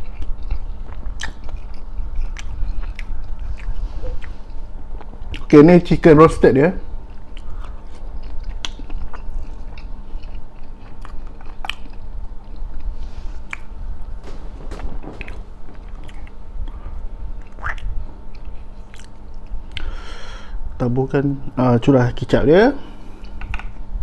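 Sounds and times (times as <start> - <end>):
man chewing food: 0.0 - 5.5, 7.1 - 13.7.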